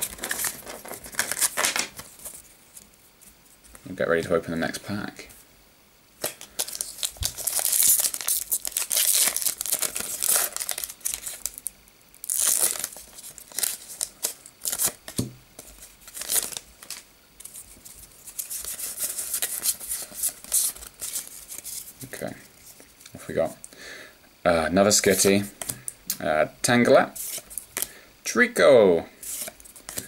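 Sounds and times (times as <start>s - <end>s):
foil wrapper crinkling: 0.0s - 2.5s, 6.2s - 22.1s.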